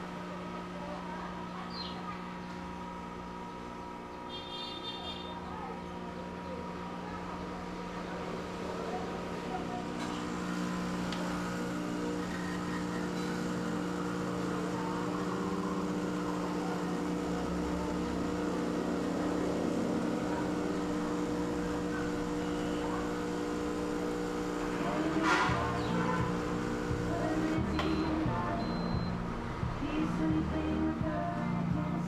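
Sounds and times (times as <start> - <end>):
espresso machine pump humming: 0.0 - 32.0.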